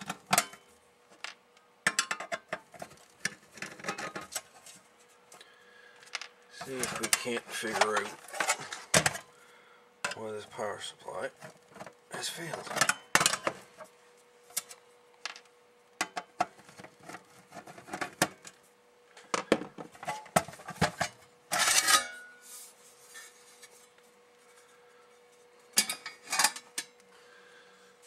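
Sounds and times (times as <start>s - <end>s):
metal cover scraping rattle: 1.9s - 4.6s, 6.6s - 9.2s, 19.9s - 22.4s, 25.8s - 26.9s.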